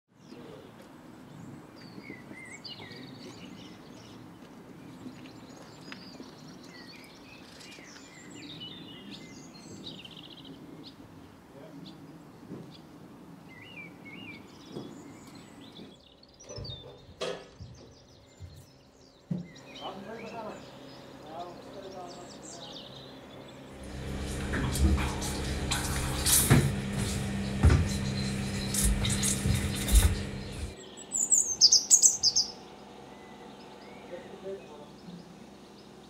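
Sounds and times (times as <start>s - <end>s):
songbirds chirping: 0.1s - 36.0s
low outdoor rumble: 23.2s - 31.3s
low knocks: 23.8s - 30.8s.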